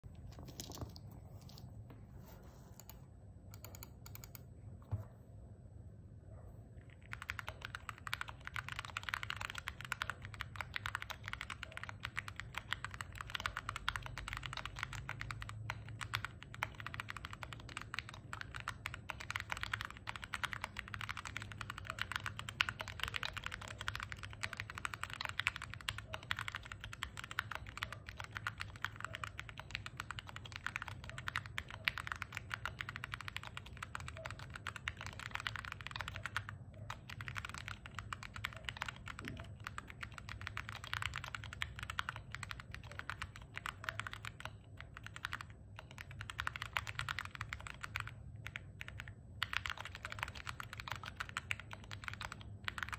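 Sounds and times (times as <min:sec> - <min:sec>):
mechanical keyboard typing: 0:02.8 - 0:04.5, 0:06.8 - 0:52.9.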